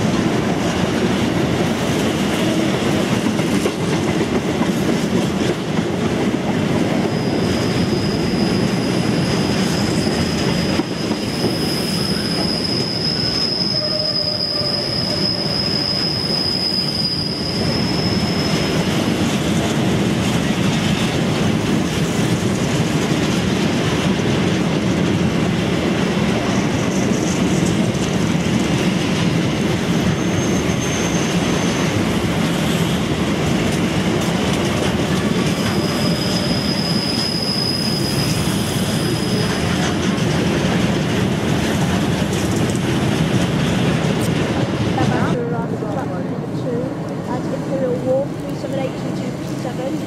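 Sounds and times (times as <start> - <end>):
freight train rumbling past: 0.0 - 50.0
high wheel squeal: 7.0 - 19.2, 30.1 - 33.0, 35.2 - 39.9.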